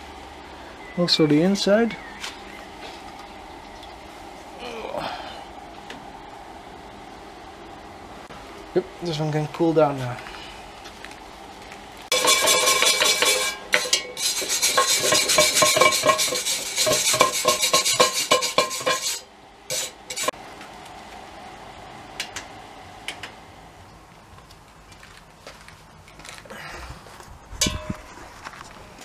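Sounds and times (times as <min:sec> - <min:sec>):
metallic scraping in iron pot: 0:12.1 - 0:20.4.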